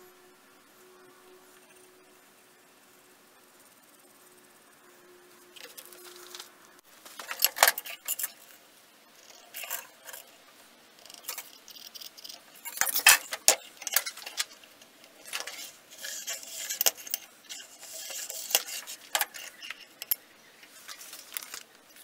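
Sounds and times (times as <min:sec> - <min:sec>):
scribe scratching steel: 0:07.2 - 0:08.6, 0:09.2 - 0:21.2
steel parts clicking on stone: 0:07.2 - 0:08.6, 0:09.2 - 0:10.4, 0:11.0 - 0:20.2.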